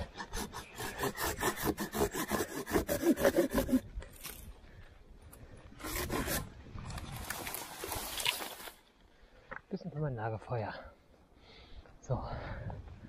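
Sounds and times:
hand saw cutting wood: 0.0 - 3.8, 5.8 - 6.5.

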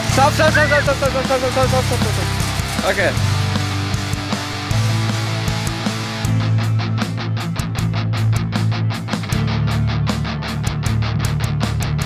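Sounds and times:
rock band music: 0.0 - 12.0.

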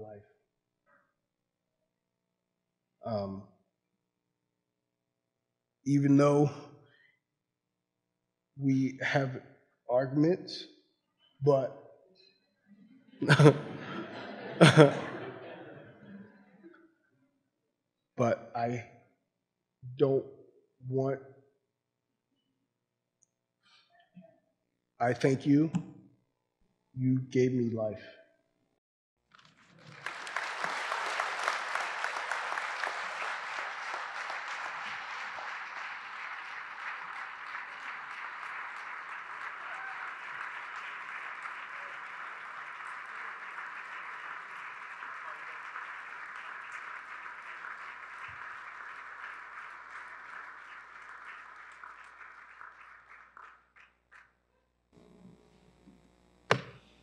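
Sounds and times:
large audience clapping: 13.2 - 16.2, 29.2 - 54.4, 56.5 - 56.8.

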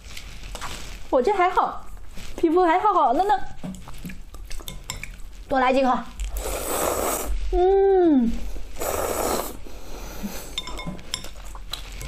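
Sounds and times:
noodles slurped: 6.2 - 7.4, 8.7 - 10.5
person humming: 7.6 - 8.4.

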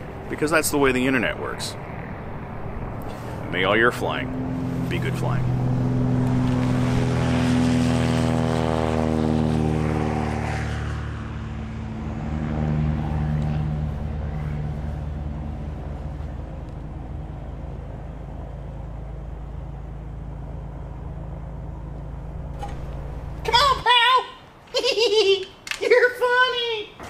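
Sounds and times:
aircraft engine passing by: 0.0 - 25.2
low steady rumble: 11.0 - 23.9.

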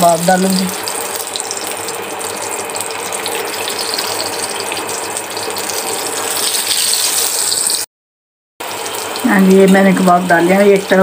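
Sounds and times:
food sizzling in hot fat: 0.0 - 7.9, 8.6 - 11.0.

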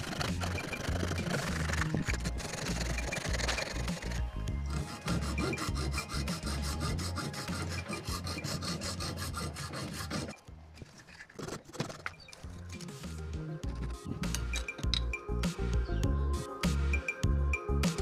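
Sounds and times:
file rasping on metal: 0.0 - 10.4
background music with low beat: 0.0 - 10.9, 12.3 - 18.0.

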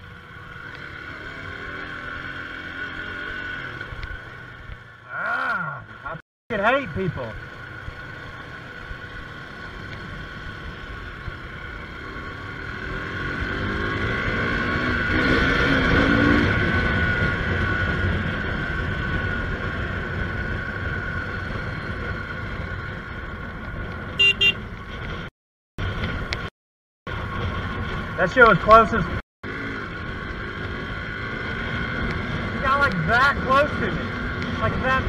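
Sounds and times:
motorcycle engine: 0.0 - 26.5, 27.1 - 35.0
short horn beeps: 24.2 - 24.6.

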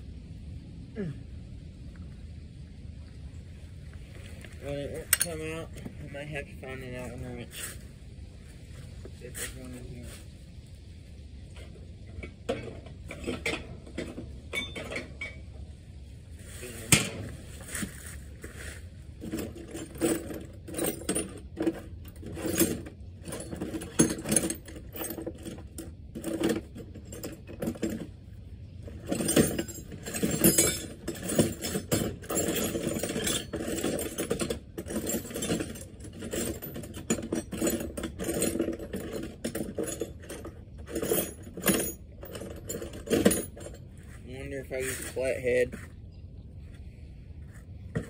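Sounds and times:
hand tools clinking in metal toolbox: 5.0 - 5.9, 12.1 - 15.4, 19.2 - 28.1, 28.8 - 43.9.

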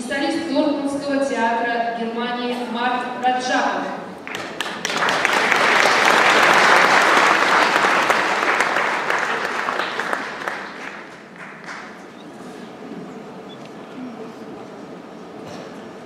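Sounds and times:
audience applauding: 4.2 - 12.3.

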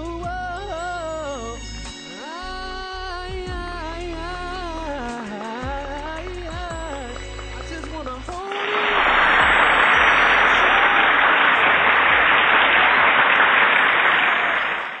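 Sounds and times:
person singing: 0.0 - 10.7
audience applauding: 8.4 - 15.0.

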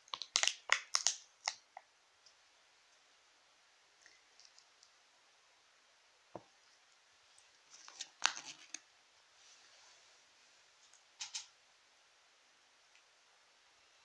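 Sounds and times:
plastic clicks and crinkles: 0.0 - 2.4, 7.7 - 8.8.

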